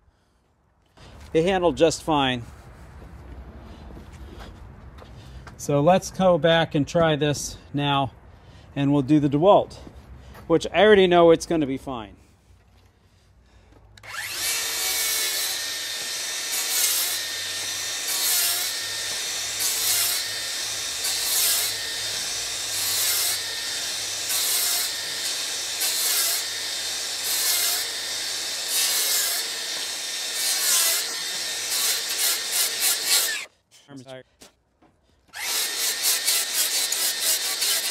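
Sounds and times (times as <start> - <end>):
circular saw cutting wood: 14.0 - 33.5, 35.3 - 37.9.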